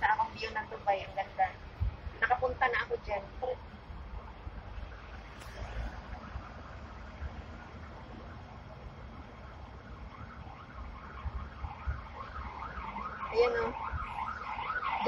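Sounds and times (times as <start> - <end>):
siren wailing: 9.7 - 15.0.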